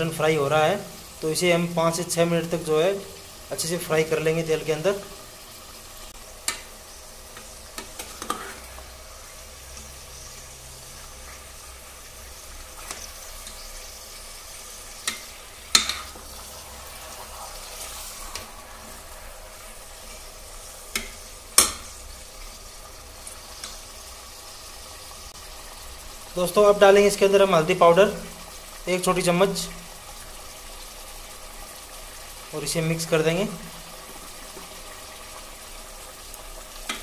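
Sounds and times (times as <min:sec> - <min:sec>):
meat sizzling in oil: 0:00.0 - 0:37.0
metal ladle scraping pot: 0:07.8 - 0:08.9.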